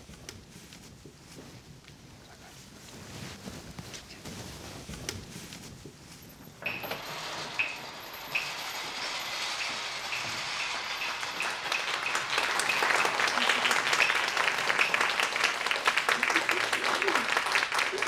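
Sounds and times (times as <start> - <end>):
stage curtain swishing open: 6.6 - 15.1
sharp clacks: 6.6 - 16.2
audience applause: 8.7 - 18.0.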